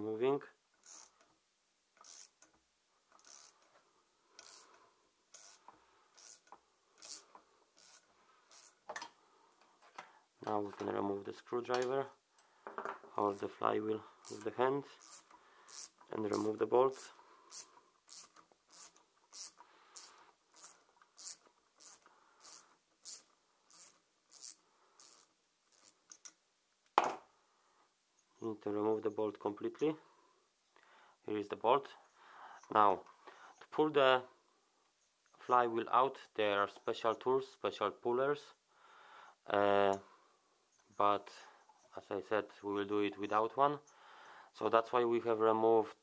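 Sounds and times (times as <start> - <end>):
wrench scraping on nut: 0.8 - 1.2, 2.0 - 2.5, 3.1 - 3.7, 4.4 - 8.8, 14.2 - 26.3
hand driver rasping strokes: 2.0 - 2.5, 3.1 - 3.8, 4.4 - 8.8, 14.2 - 26.2.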